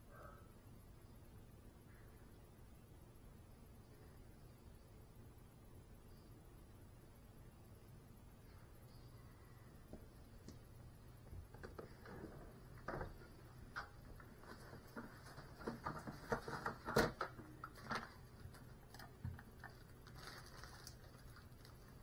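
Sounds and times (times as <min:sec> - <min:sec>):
low steady hum: 0:00.0 - 0:22.0
small taps and rustling clicks: 0:09.9 - 0:22.0.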